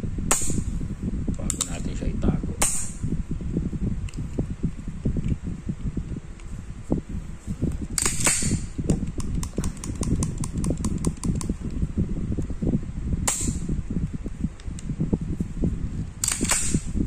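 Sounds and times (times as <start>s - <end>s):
light metallic clicks: 1.3s - 1.8s
hand-handling noise: 4.0s - 11.8s, 13.3s - 17.0s
pistol action metallic snaps: 16.2s - 16.8s.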